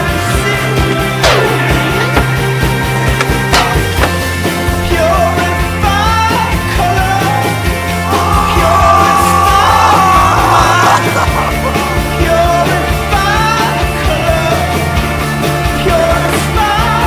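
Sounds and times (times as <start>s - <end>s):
rock music: 0.0s - 17.0s
singer yelling: 8.0s - 13.7s.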